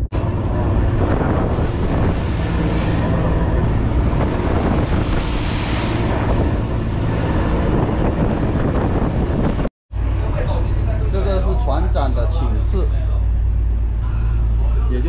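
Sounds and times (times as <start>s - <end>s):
wind on microphone: 0.0s - 9.7s
boat engine running: 0.0s - 15.0s
waves breaking along hull: 0.0s - 15.0s.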